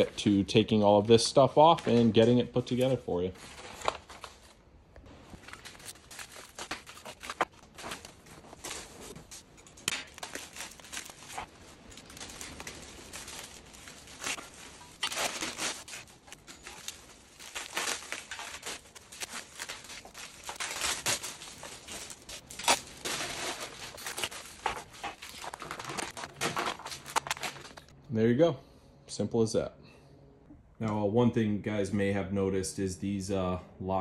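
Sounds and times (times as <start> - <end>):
plastic wrap rustling: 1.4 - 27.9.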